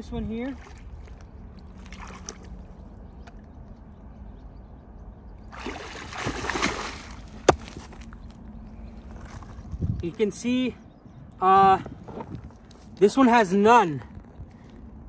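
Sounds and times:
water sloshing: 0.0 - 3.6, 5.4 - 8.4
water splashing and pouring: 0.6 - 2.5, 5.6 - 7.5
rock knock: 7.4 - 8.0.

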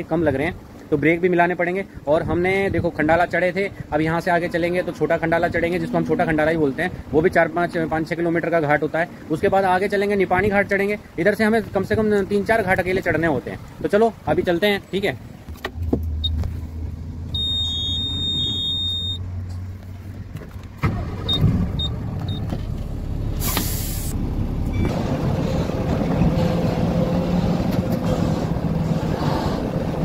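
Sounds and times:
dashboard warning buzzer beeping: 17.4 - 19.2
truck diesel engine running: 20.8 - 30.0
compressed air hiss: 23.4 - 24.2.

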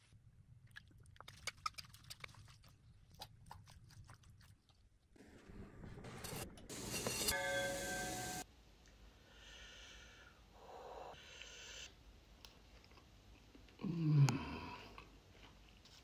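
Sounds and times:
breathing through the nose: 9.2 - 11.9
person humming mmm: 13.8 - 15.0.

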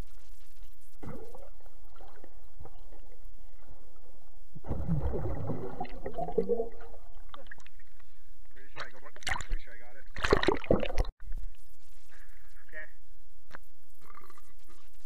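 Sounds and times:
underwater low rumble: 0.9 - 11.6
water bubbling and churning: 1.0 - 8.0, 8.8 - 11.1.

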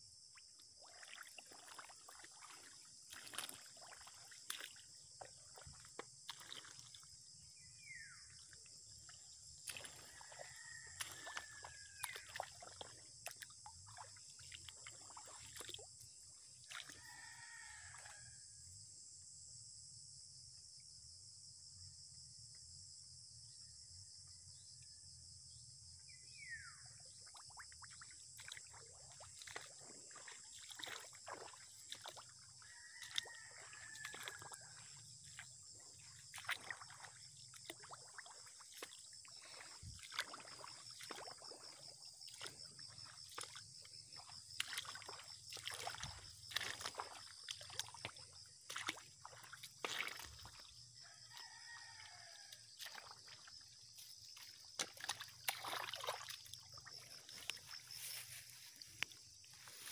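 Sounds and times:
squelching footsteps in mud: 0.7 - 18.3, 27.3 - 59.9
grass swishing against legs: 57.4 - 59.9.

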